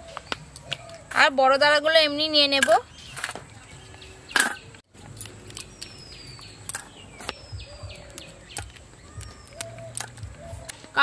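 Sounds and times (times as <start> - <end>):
bird whistling: 7.2 - 10.8
crab legs snapping: 8.0 - 10.8.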